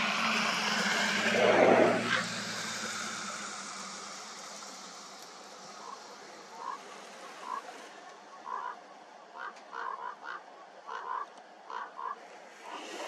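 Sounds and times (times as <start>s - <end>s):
steady hiss: 0.0s - 8.6s
short animal calls: 9.4s - 12.2s.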